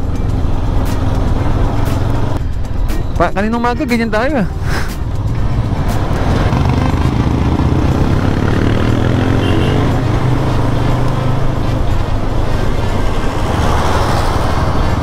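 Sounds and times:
motorcycle engine running: 5.0s - 15.0s.

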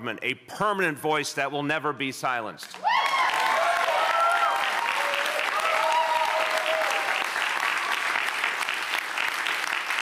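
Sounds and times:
voices cheering: 2.8s - 8.3s
crowd applauding: 2.8s - 10.0s.

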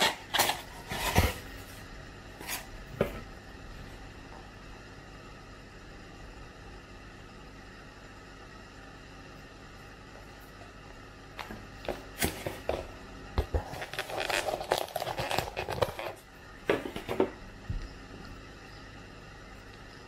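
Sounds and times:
plastic sachet crinkling: 13.7s - 16.2s.

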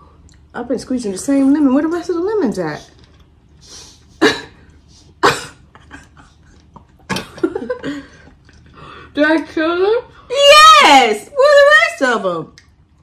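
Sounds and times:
person coughing: 5.2s - 6.2s.

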